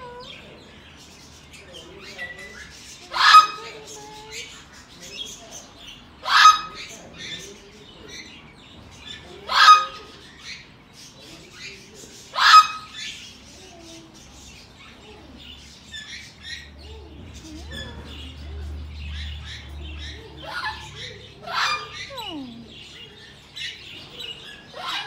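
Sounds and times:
parrot chirping and chattering: 0.0 - 25.0
parrot squawking: 3.1 - 4.2, 6.2 - 6.9, 9.5 - 10.2, 12.3 - 13.1, 20.1 - 23.2.

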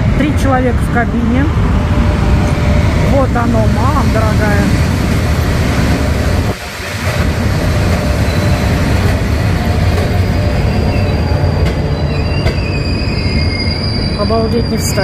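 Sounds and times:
train wheels rumbling: 0.0 - 15.0
train wheels squealing: 8.2 - 15.0.

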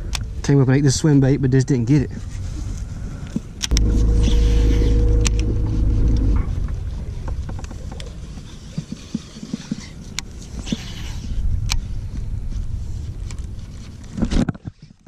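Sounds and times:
electric boat motor humming: 3.7 - 8.0.

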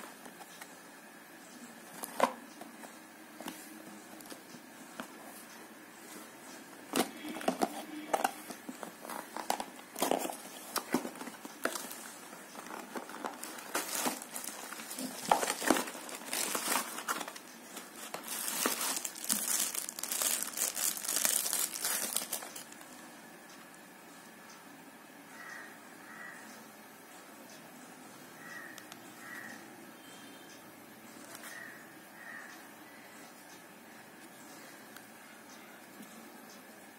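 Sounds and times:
plastic and bubble wrap crinkling: 6.9 - 22.8.

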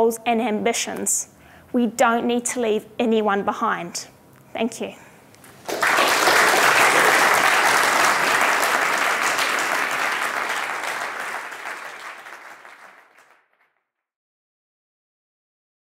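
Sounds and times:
audience applauding: 5.5 - 13.7.

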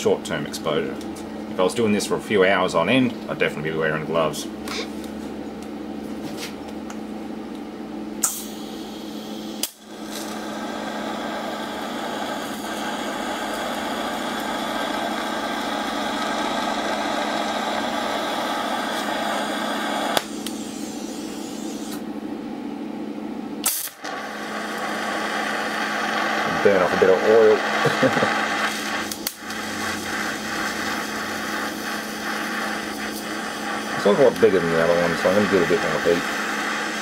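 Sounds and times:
welding arc hissing: 8.2 - 22.0, 23.6 - 37.0.

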